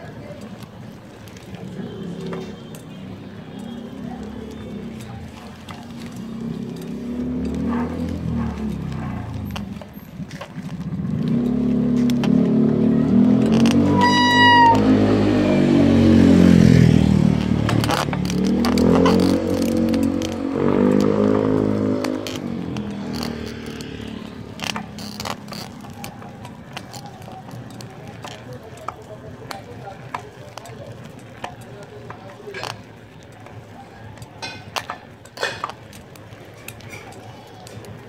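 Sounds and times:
small motorbike engine running: 5.6s - 28.4s.

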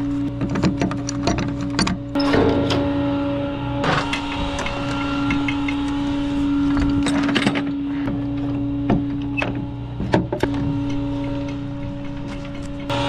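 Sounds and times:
truck engine hum: 0.0s - 13.0s
metallic clicks and knocks: 0.4s - 2.5s.

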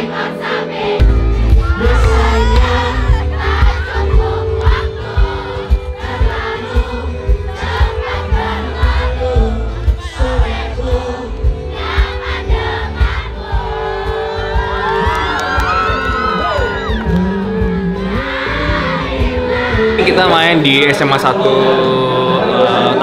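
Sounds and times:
band music: 0.0s - 23.0s
crowd singing along: 0.0s - 23.0s.

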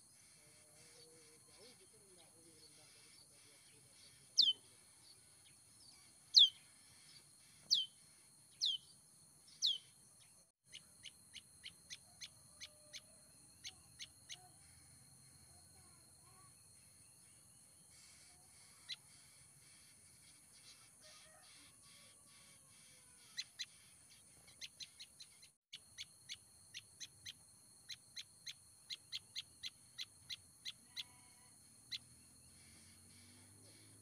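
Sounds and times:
songbird whistling: 4.4s - 4.6s, 6.3s - 6.6s, 7.6s - 8.0s, 8.6s - 8.9s, 9.5s - 9.9s.

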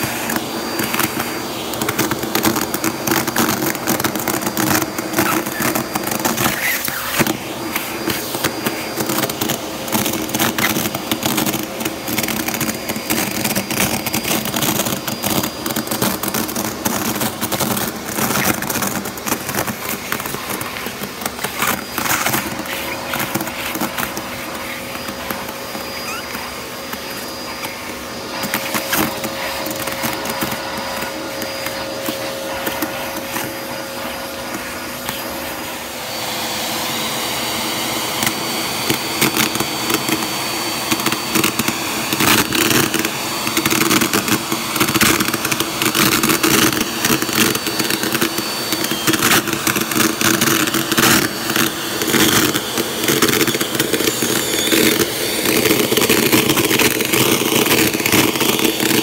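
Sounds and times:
paper crackling and rustling: 0.0s - 35.6s
vacuum cleaner motor whine: 0.0s - 59.0s.

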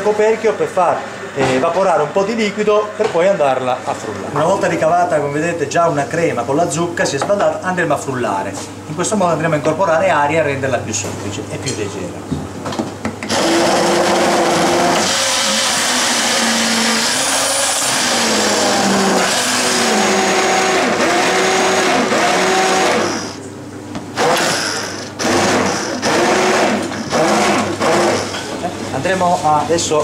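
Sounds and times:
immersion blender motor running: 13.3s - 23.4s, 24.2s - 28.5s.

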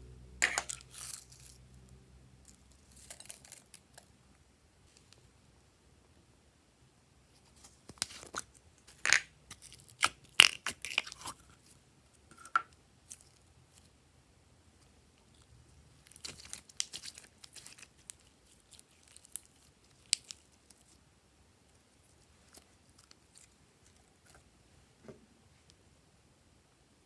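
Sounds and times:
sticky slime crackling: 16.0s - 21.0s.

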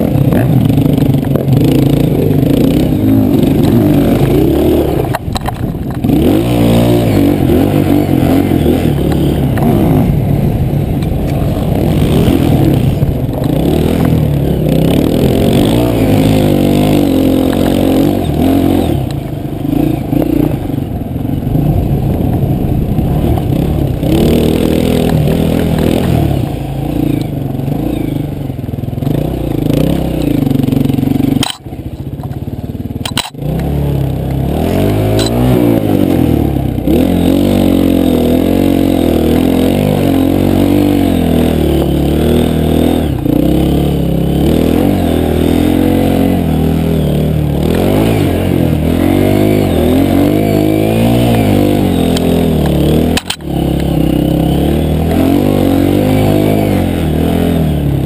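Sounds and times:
bike rattling over bumps: 0.0s - 28.0s
dirt bike engine revving: 0.0s - 58.0s.

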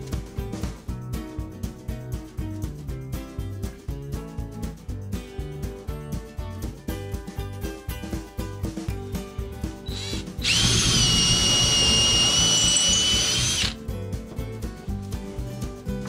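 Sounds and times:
background music: 0.0s - 16.0s
cordless drill driving screw: 9.9s - 13.8s.

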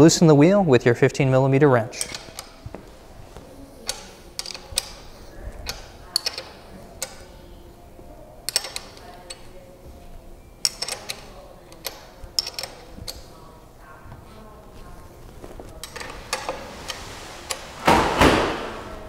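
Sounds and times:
wrench metal clicks and clinks: 2.0s - 2.5s, 3.8s - 7.3s, 8.5s - 9.5s, 10.6s - 13.3s.

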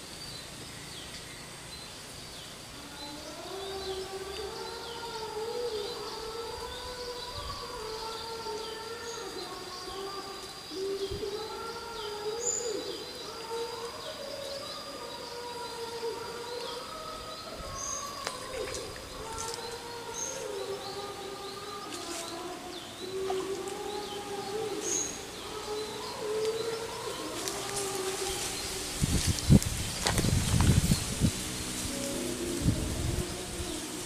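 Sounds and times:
birds chirping: 0.0s - 34.0s
thin high insect-like tone: 0.0s - 34.0s
wavering low tone: 10.8s - 34.0s.

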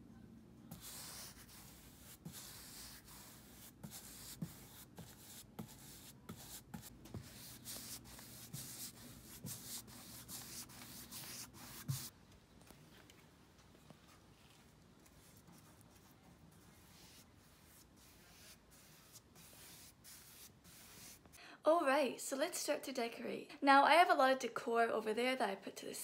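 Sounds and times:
paintbrush strokes on wood: 0.7s - 12.1s, 14.4s - 21.4s.

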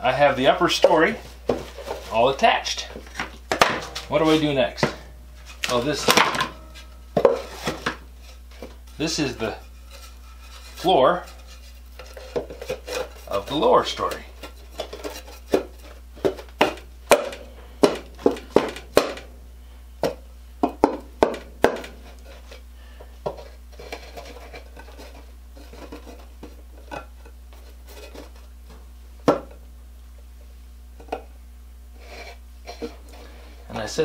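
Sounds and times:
wood rubbing and scraping: 0.8s - 16.5s, 21.2s - 26.9s.

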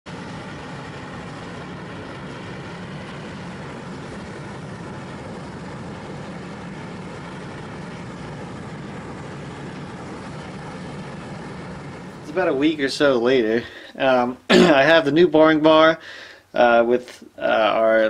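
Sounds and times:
furnace burner roaring: 0.0s - 18.0s
low hum: 0.1s - 15.7s.

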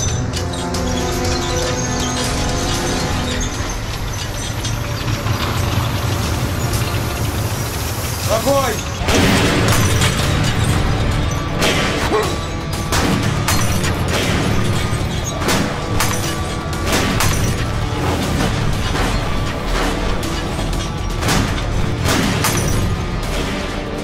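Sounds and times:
continuous low rumble: 0.0s - 24.0s
dramatic orchestral score: 0.0s - 24.0s
explosions and bangs: 8.8s - 24.0s.

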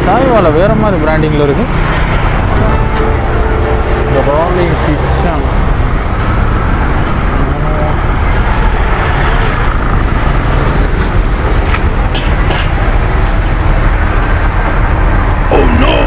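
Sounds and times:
people talking: 0.0s - 1.7s, 4.0s - 5.6s, 7.4s - 8.1s, 15.5s - 16.0s
road traffic rumble: 0.0s - 16.0s.

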